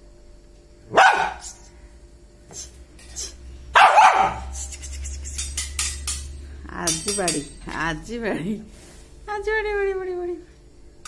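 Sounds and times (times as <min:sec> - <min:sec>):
dog barking: 0:00.9 - 0:01.6, 0:03.7 - 0:04.6.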